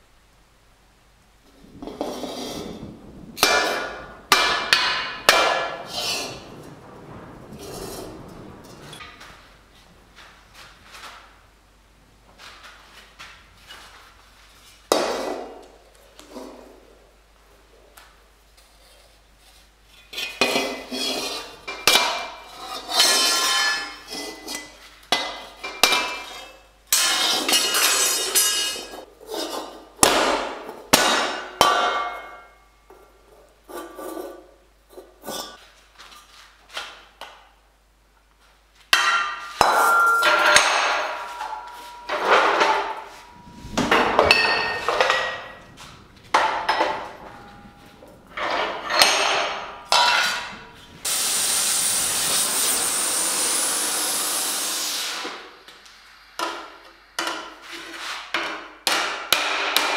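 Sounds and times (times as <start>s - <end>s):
hammer striking steel plate: 3.4s - 6.4s, 39.0s - 45.7s, 48.4s - 50.6s, 58.4s - 59.9s
metal ringing: 39.0s - 50.7s.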